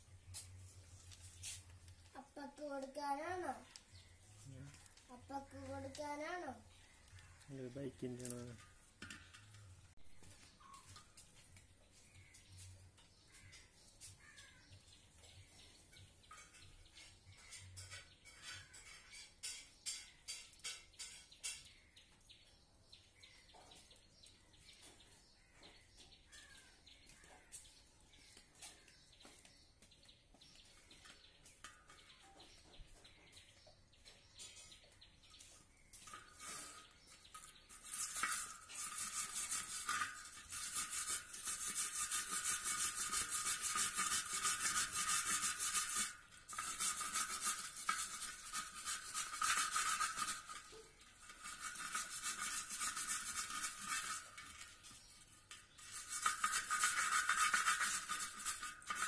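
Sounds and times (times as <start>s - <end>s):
wire brush scraping rust off metal: 0.0s - 21.9s, 34.0s - 59.0s.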